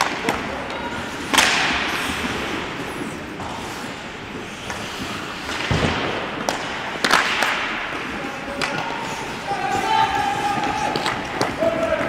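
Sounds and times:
skates hissing on ice: 1.0s - 5.7s, 8.2s - 11.0s.

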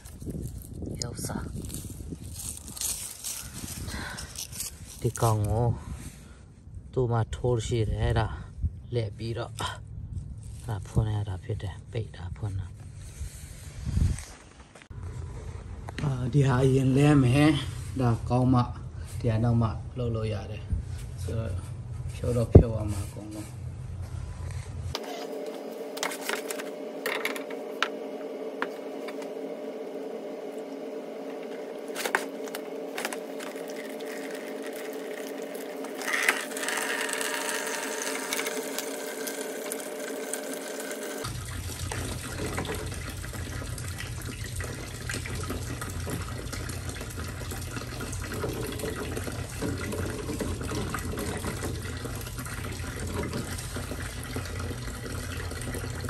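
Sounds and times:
water spraying from pipe: 29.3s - 56.0s.

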